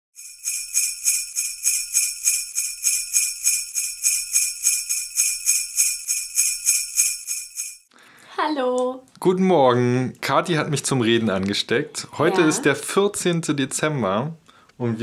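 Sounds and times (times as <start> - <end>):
sleigh bells shaking: 0.2 - 7.9.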